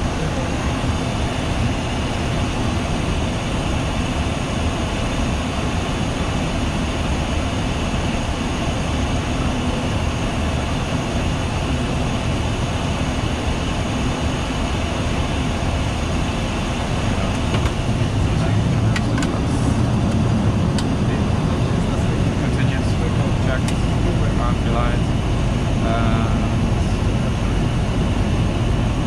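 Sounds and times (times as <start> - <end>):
airflow and engine noise in cockpit: 0.0 - 29.0.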